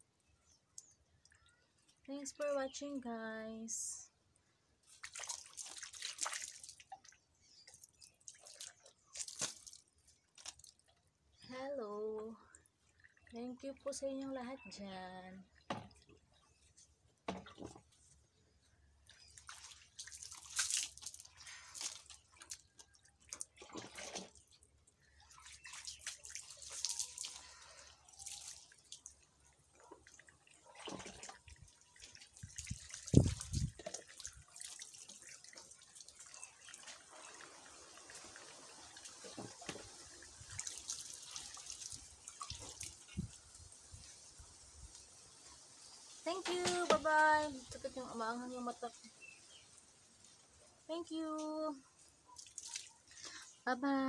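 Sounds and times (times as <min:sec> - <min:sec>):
water splashing over person: 0:04.9 - 0:07.0, 0:19.4 - 0:22.8, 0:25.3 - 0:29.1, 0:30.6 - 0:43.2.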